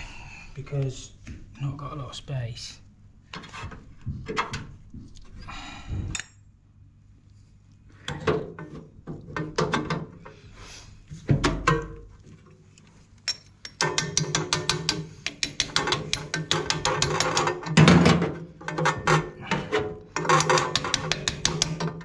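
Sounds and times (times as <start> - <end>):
metal knocks and handling: 3.3 - 5.2, 8.1 - 10.3, 11.2 - 12.5, 13.2 - 22.0.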